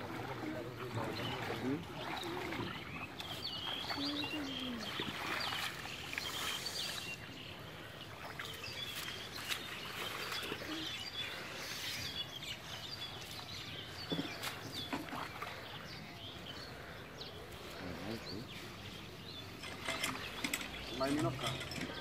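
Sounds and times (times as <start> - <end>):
water splashing: 0.0 - 11.4, 13.2 - 15.9
small birds chirping: 0.3 - 22.0.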